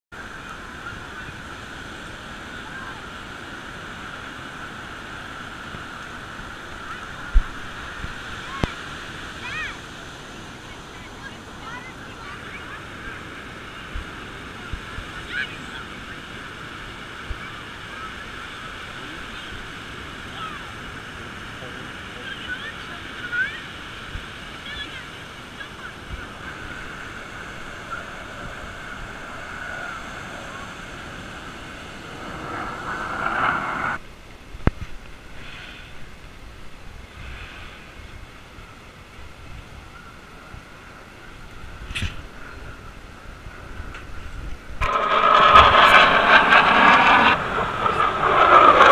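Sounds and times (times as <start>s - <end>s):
wind: 0.0s - 48.9s
faint noise: 0.2s - 48.9s
surf hiss: 0.2s - 48.9s
faint distant calls: 22.2s - 34.0s
short rising call: 26.3s - 34.0s.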